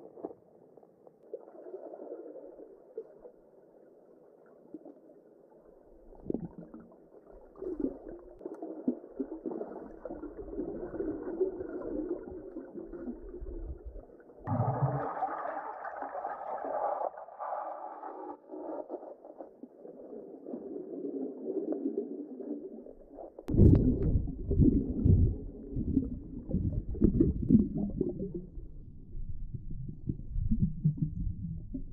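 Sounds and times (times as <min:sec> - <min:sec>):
river water heard underwater: 0:00.0 - 0:31.9
underwater knocks: 0:23.5 - 0:28.5.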